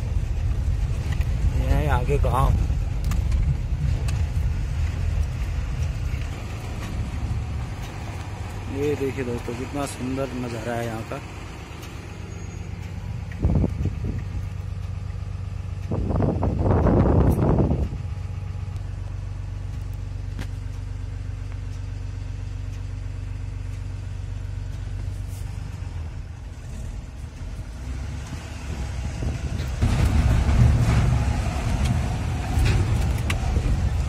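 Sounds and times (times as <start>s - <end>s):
truck engine droning: 0.0s - 34.0s
truck knocking over rough road: 28.7s - 34.0s.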